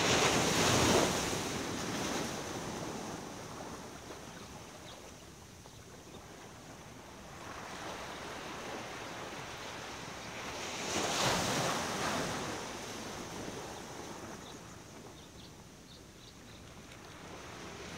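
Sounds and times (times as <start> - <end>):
ocean waves washing: 0.0 - 4.7.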